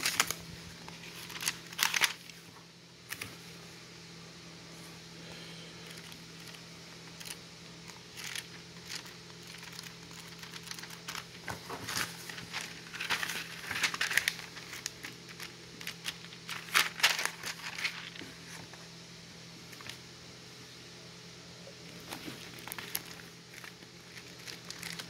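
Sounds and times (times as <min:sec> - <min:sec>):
catalogue pages turning: 0:00.0 - 0:03.4, 0:05.8 - 0:18.8, 0:21.9 - 0:25.0.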